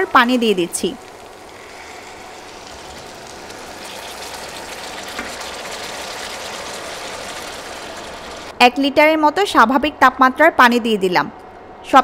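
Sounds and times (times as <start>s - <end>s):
water pouring into hot pan: 0.0s - 8.6s.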